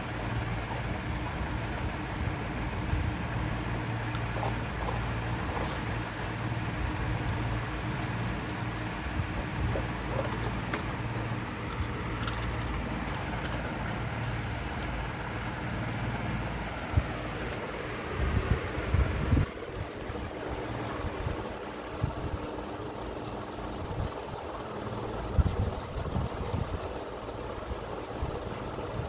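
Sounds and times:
steady low hum: 0:00.0 - 0:29.0
puppy crunching ice cubes: 0:04.0 - 0:15.6.

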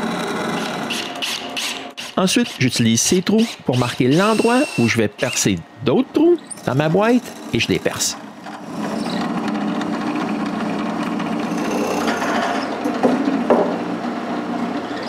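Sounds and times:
drill bit boring into plywood: 0:00.0 - 0:05.6, 0:06.4 - 0:12.6
drill press motor running: 0:00.0 - 0:05.8, 0:06.4 - 0:15.0.

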